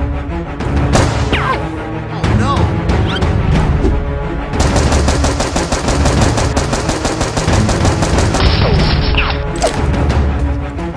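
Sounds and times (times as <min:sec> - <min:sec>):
background music: 0:00.0 - 0:10.9
rapid machine-gun fire: 0:04.6 - 0:08.8.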